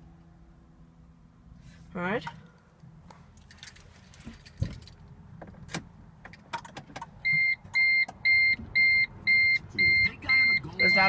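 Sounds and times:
car keys jangling and clicking: 3.4s - 8.2s
dashboard chime high beeps: 7.4s - 11.0s.

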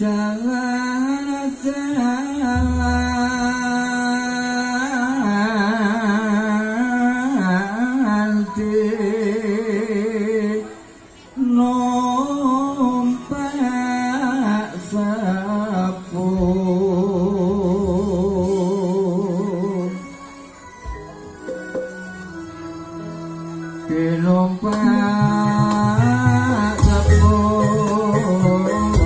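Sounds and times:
slow sung melody with vibrato: 0.0s - 29.0s.

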